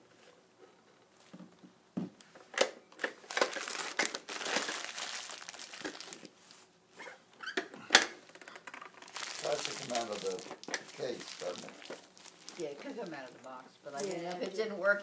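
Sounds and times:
packaging crinkling and rustling: 0:03.0 - 0:06.5, 0:08.3 - 0:14.6.

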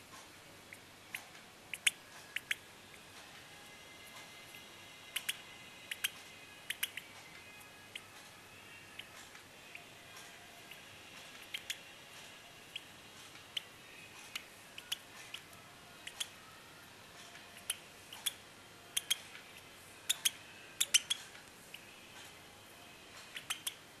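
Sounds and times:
bird chick clicking chirps: 0:00.7 - 0:02.7, 0:04.5 - 0:08.2, 0:10.7 - 0:11.9, 0:12.7 - 0:16.4, 0:17.4 - 0:21.9, 0:23.2 - 0:23.8.

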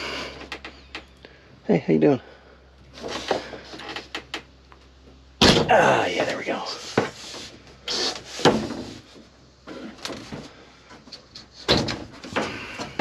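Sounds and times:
plywood panel knocking and scraping: 0:08.2 - 0:10.4.

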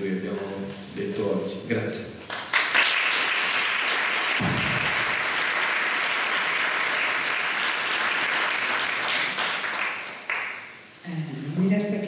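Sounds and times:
audience applauding: 0:02.3 - 0:10.7
low thump: 0:04.4 - 0:05.1.

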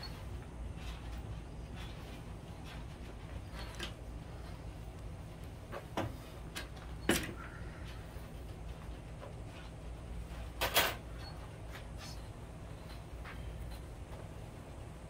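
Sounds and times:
low steady hum: 0:00.0 - 0:15.0
knocks and clunks at workbench: 0:05.7 - 0:07.4.

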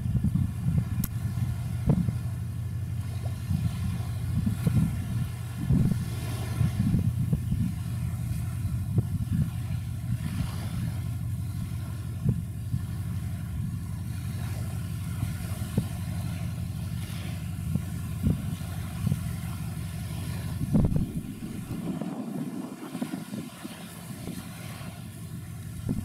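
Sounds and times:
short low thumps: 0:00.0 - 0:02.3, 0:20.6 - 0:22.4
low rumble of ship engines: 0:00.0 - 0:26.0.

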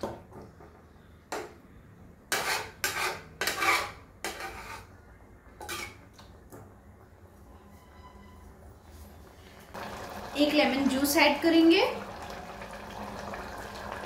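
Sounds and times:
metal spoon scraping a pot: 0:02.3 - 0:06.2.

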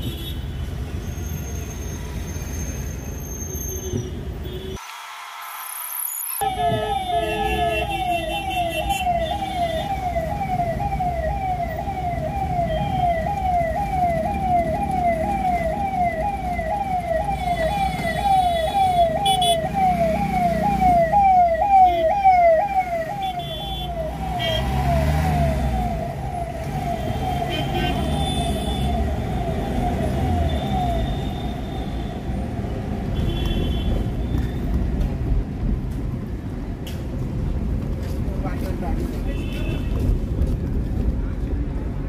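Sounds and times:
electronic siren wailing: 0:06.1 - 0:32.3
traffic rumble: 0:06.4 - 0:42.0.

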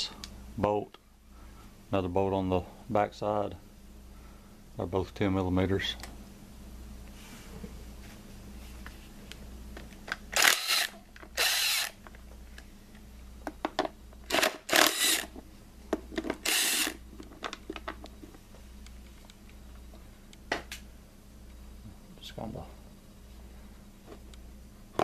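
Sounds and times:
power tool spinning in bursts: 0:10.4 - 0:12.0, 0:14.3 - 0:15.3, 0:16.4 - 0:17.0.

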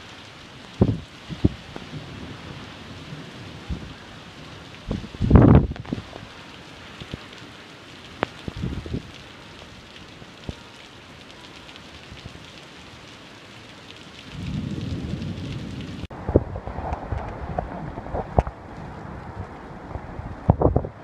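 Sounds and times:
heavy rain on pavement: 0:00.0 - 0:21.0
low rumble: 0:14.4 - 0:21.0.

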